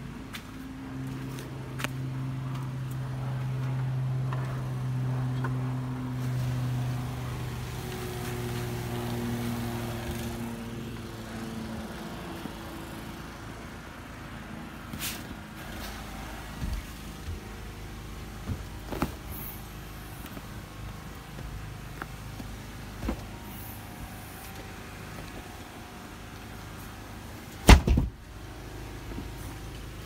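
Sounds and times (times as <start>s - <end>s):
engine humming: 0.0s - 30.0s.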